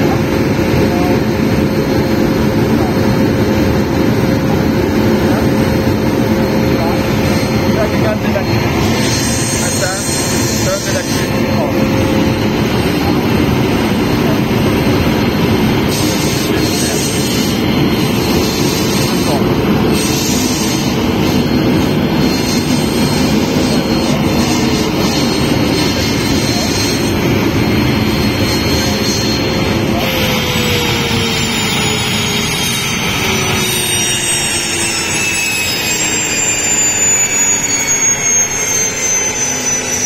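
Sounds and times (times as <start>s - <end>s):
gas turbine whine: 0.0s - 40.0s.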